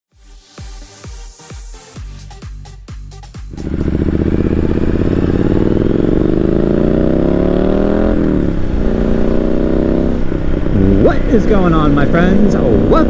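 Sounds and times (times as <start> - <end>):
motorcycle engine accelerating: 3.1 - 13.0.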